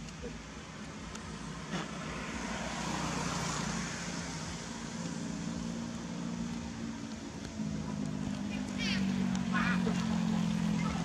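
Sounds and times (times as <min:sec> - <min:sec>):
low engine hum: 0:00.0 - 0:11.0
motor vehicle passing: 0:00.2 - 0:11.0.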